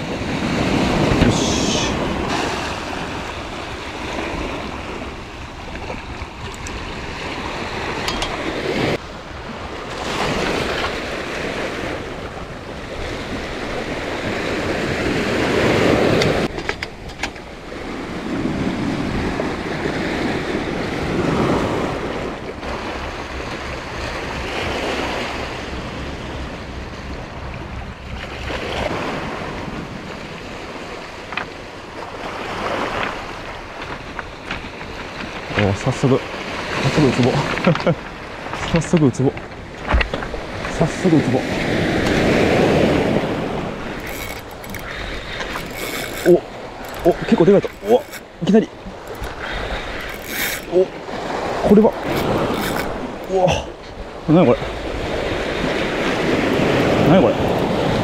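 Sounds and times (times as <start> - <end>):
waves washing over rocky shore: 0.0 - 16.5, 28.3 - 58.0
wind: 0.0 - 58.0.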